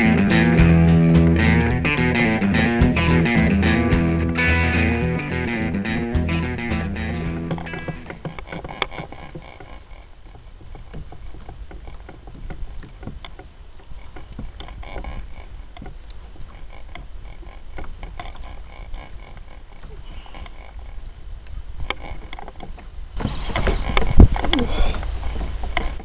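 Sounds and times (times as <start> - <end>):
knocks and clicks: 0.0 - 9.7
water lapping against kayak hull: 7.4 - 26.0
low wind rumble: 19.6 - 26.0.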